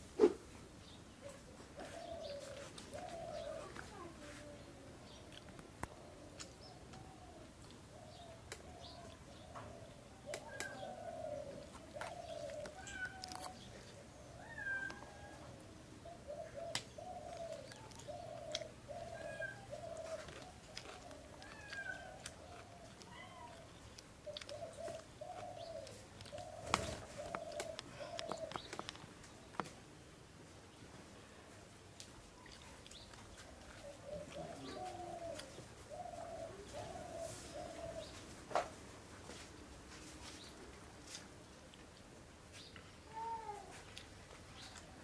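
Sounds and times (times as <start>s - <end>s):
birds chirping faintly: 0.7s - 45.0s
cat meowing: 12.8s - 13.6s, 14.4s - 15.4s, 21.4s - 22.2s.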